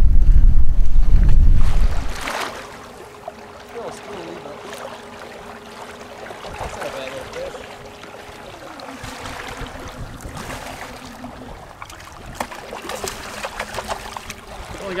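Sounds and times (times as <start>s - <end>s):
wind: 0.0s - 15.0s
water sloshing against kayak hull: 1.0s - 15.0s
electric outboard motor whine: 2.3s - 15.0s.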